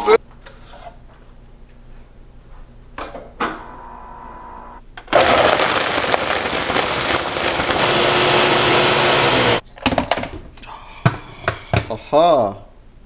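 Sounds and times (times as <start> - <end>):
blender motor running: 5.2 - 9.6.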